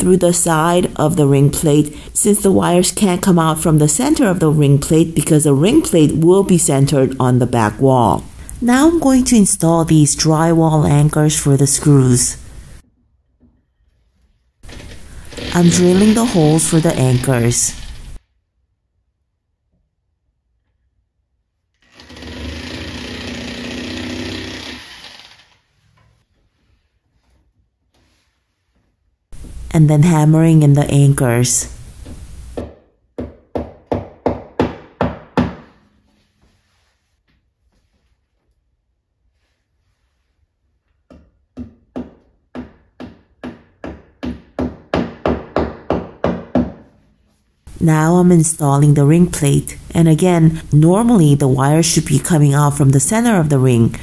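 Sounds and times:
electric drill boring into drywall: 21.8 - 25.6.

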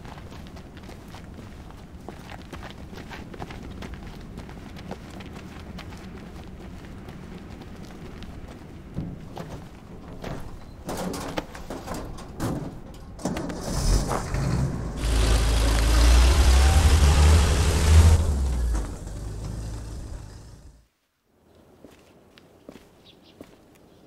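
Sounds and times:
heavy truck driving past: 13.6 - 20.9.

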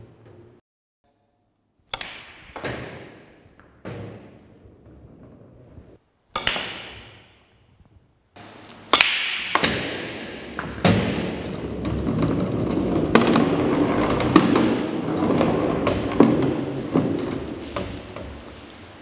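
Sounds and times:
steady background noise: 1.8 - 19.0
pool balls clicking: 8.4 - 19.0.

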